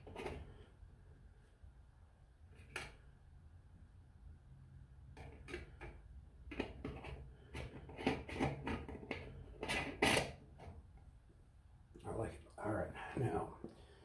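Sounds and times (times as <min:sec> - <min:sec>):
cap screwing clicks and scrapes: 0:05.2 - 0:10.7.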